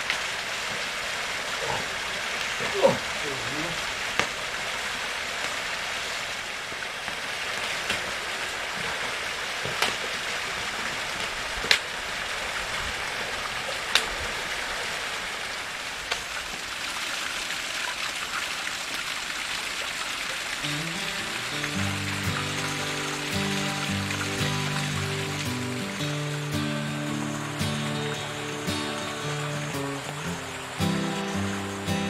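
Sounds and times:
waterfall splashing into pool: 0.0s - 32.0s
campfire wood cracking: 4.0s - 4.8s, 7.0s - 13.2s, 20.6s - 32.0s.

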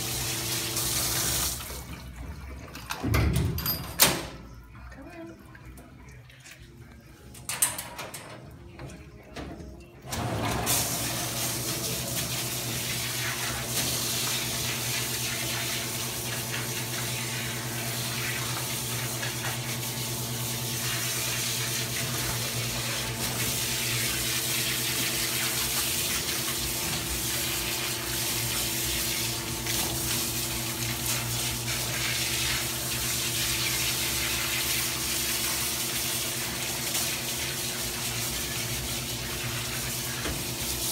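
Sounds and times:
water spraying and splashing: 0.0s - 2.2s, 10.5s - 40.9s.

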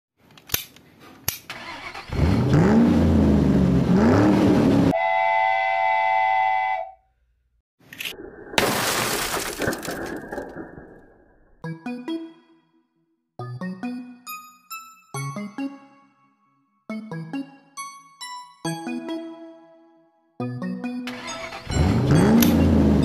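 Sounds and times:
engine revving: 1.5s - 5.0s, 21.1s - 23.0s
horn blast: 4.9s - 7.0s.

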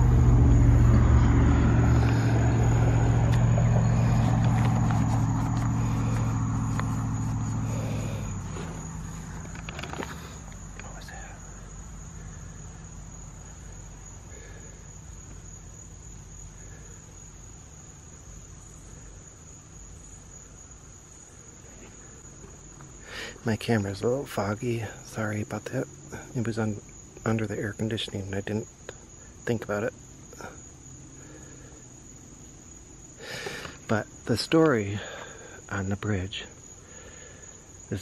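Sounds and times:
low engine-like hum: 0.0s - 29.4s
crickets chirping: 0.0s - 38.0s.

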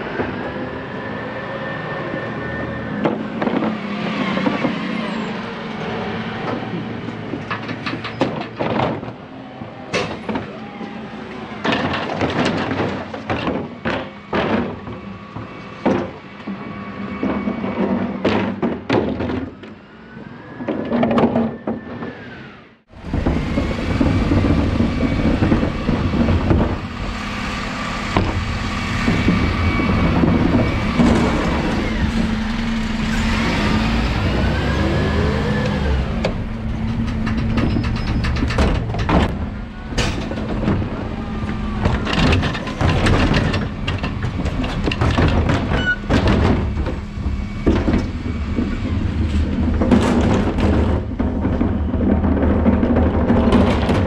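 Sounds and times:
wheelie bins clunking: 6.4s - 19.8s, 23.0s - 54.0s
mechanical whine: 19.9s - 52.4s
truck engine running: 22.9s - 53.6s.

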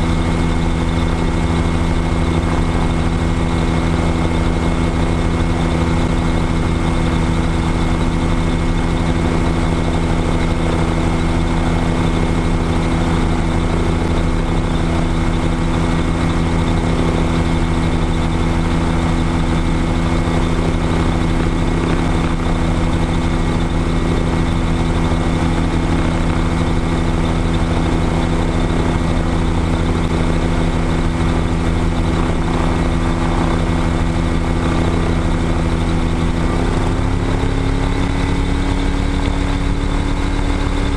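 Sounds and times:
aircraft engine and propeller idling: 0.0s - 40.9s.

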